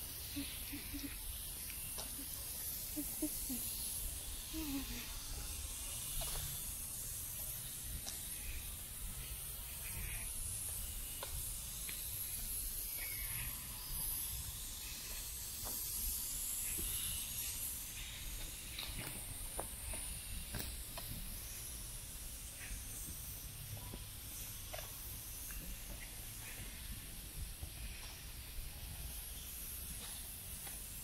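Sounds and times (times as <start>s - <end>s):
steady high hiss: 0.0s - 31.0s
faint ticks: 0.4s - 2.3s.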